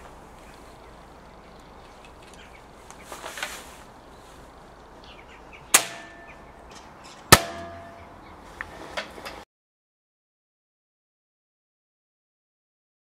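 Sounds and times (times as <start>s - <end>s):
air rifle shot: 5.7s - 6.3s
sharp clack: 5.8s - 6.4s, 7.3s - 8.1s.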